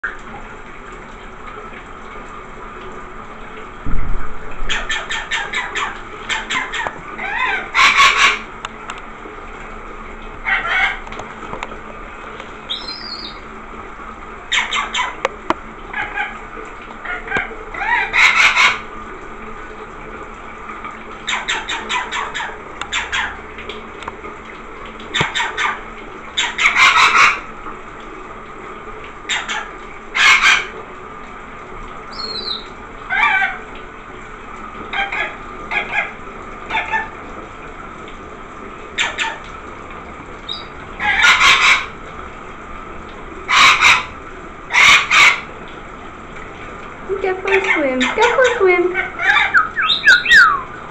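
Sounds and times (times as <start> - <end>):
running shower water: 0.0 - 50.9
parrot squawking: 4.7 - 8.5, 10.5 - 11.0, 12.7 - 13.4, 14.5 - 15.2, 17.0 - 18.9, 21.3 - 23.4, 25.2 - 25.8, 26.4 - 27.4, 29.3 - 30.7, 32.1 - 33.6, 34.9 - 36.1, 40.5 - 41.9, 43.5 - 44.1, 44.7 - 45.5, 47.5 - 50.8
short high bird chirp: 49.6 - 50.6.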